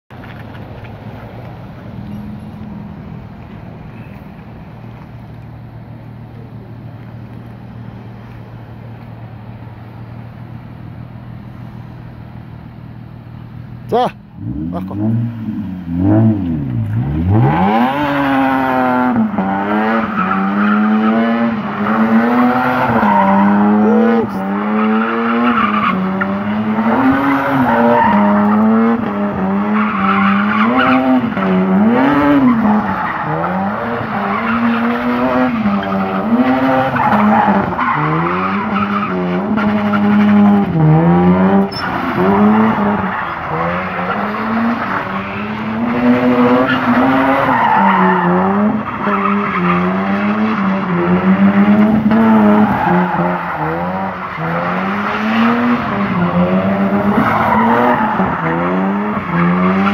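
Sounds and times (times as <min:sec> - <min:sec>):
car engine revving: 0:09.8 - 0:59.9
tyres squealing on asphalt: 0:13.6 - 0:59.9.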